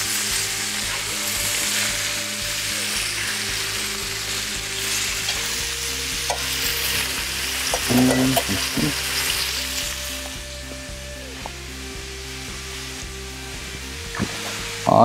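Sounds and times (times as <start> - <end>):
meat sizzling in a frying pan: 0.0 - 15.0.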